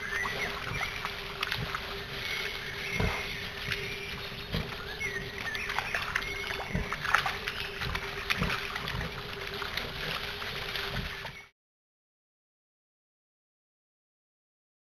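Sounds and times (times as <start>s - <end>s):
piglets sloshing in muddy water: 0.0s - 11.5s.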